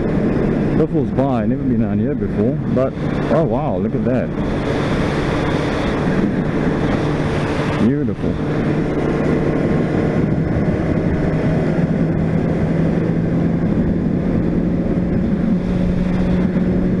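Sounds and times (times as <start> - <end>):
motorcycle engine cruising: 0.0 - 17.0
wind noise on microphone: 0.0 - 17.0.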